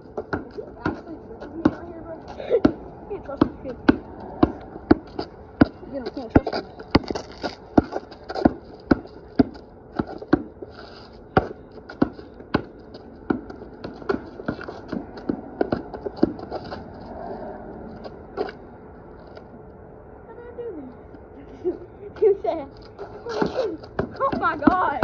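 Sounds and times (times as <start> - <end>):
basketball bouncing on concrete: 0.0 - 10.7, 11.3 - 16.8, 23.0 - 25.0.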